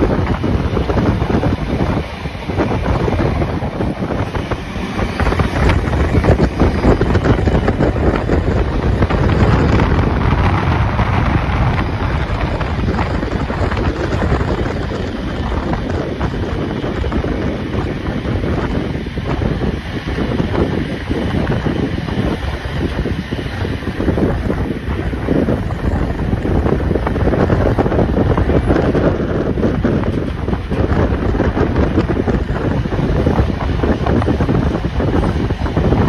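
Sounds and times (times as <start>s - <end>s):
train rumble: 0.0s - 36.0s
wind buffeting microphone: 0.0s - 36.0s.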